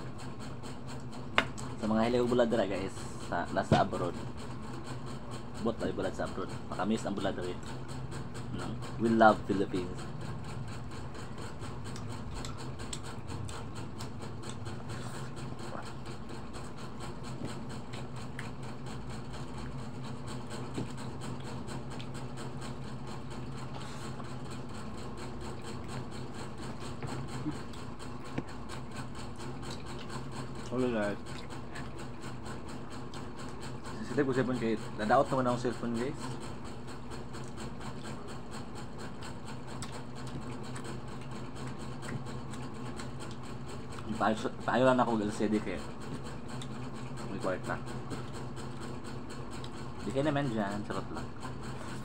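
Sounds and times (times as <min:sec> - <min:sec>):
low mechanical hum: 0:00.0 - 0:52.0
people eating with smacking: 0:03.6 - 0:52.0.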